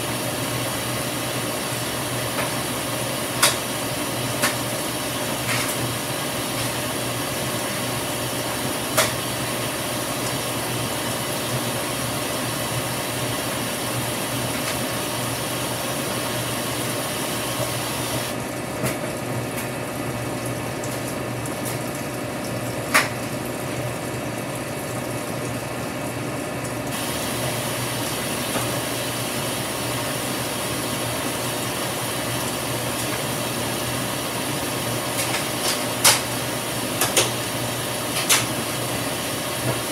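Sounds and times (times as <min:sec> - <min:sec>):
water rushing into tub: 0:20.0 - 0:39.9.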